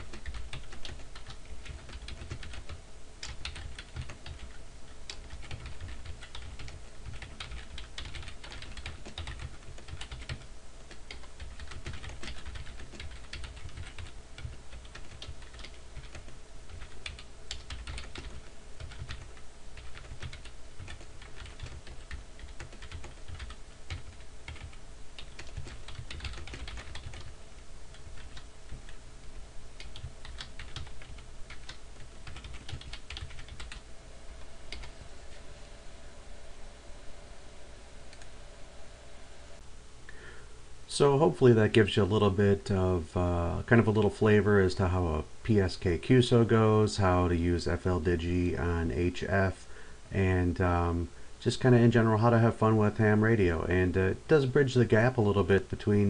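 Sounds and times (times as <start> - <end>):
computer keyboard typing: 0.1 - 27.3, 27.9 - 29.0, 29.8 - 33.8, 34.7 - 34.9.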